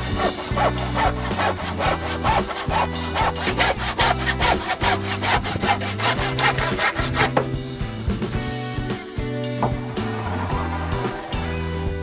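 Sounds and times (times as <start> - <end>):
hand saw cutting wood: 0.0 - 7.5.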